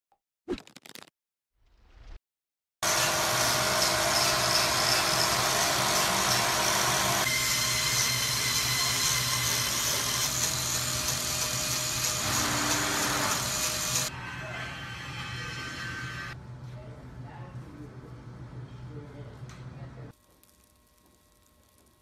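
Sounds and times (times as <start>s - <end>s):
angle grinder cutting wood: 2.8s - 14.1s.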